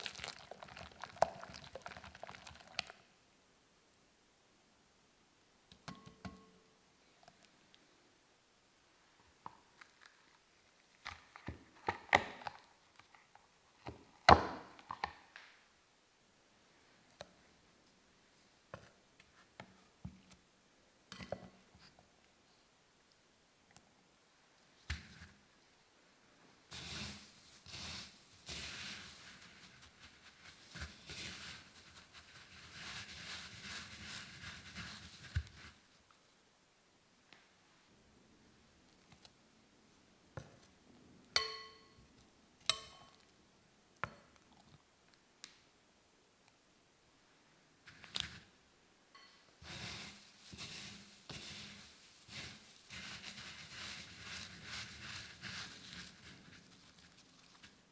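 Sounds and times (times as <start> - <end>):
breadcrumbs rustling and crackling: 0.0 - 3.0, 26.7 - 36.3, 49.6 - 57.9.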